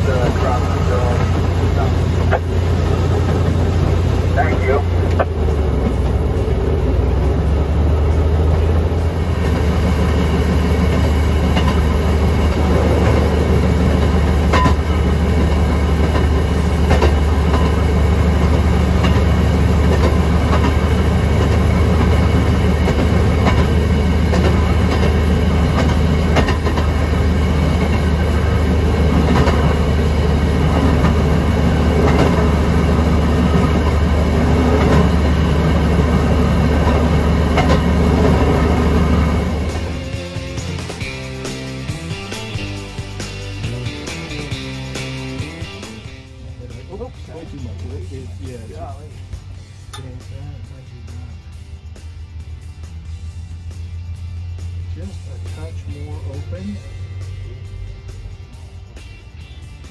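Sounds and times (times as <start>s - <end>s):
wheels clicking over rail joints: 0.0s - 46.2s
rail motorcar engine drone: 0.0s - 59.9s.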